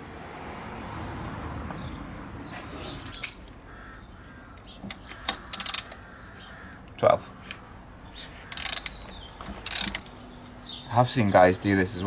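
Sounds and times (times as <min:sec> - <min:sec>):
ratchet wrench clicking: 0:05.5 - 0:06.0, 0:08.5 - 0:10.2.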